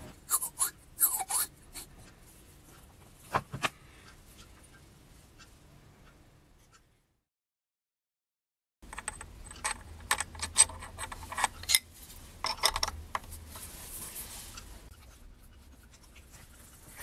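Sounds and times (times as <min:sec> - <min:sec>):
metallic clinks and knocks: 0:08.8 - 0:13.3.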